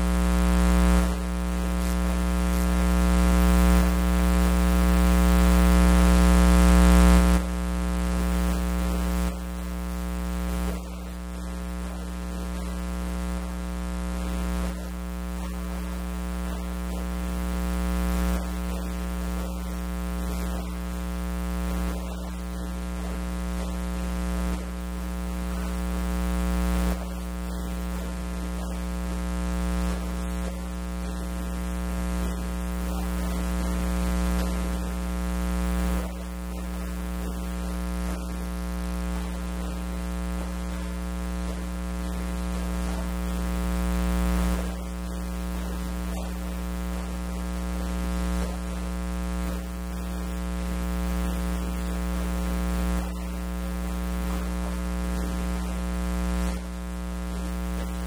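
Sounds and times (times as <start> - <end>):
steady electrical hum: 0.0 - 58.0.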